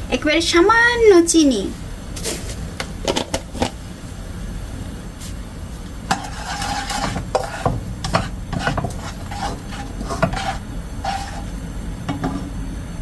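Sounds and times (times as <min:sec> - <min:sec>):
metal fork scraping a wok: 0:06.1 - 0:12.5.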